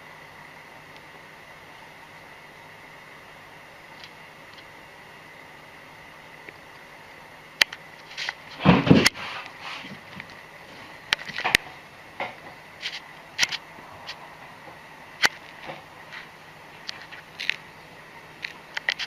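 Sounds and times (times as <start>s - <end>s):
cat landing with a thump: 8.6s - 9.3s.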